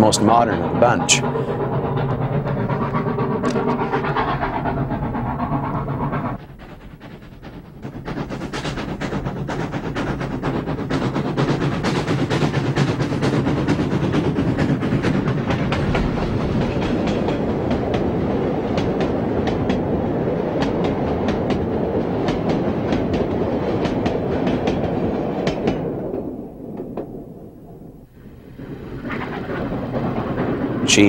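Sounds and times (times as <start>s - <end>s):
train wheels rolling: 0.0s - 31.0s
wheels clicking over rail joints: 28.2s - 31.0s.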